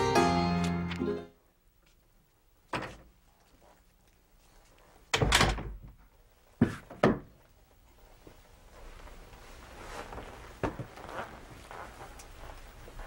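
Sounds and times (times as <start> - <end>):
door banging shut: 5.1 - 5.9.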